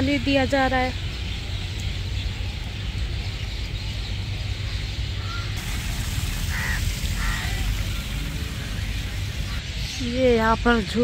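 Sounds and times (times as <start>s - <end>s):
crow cawing: 5.2s - 9.6s
water spraying from leaking hose: 5.6s - 9.6s.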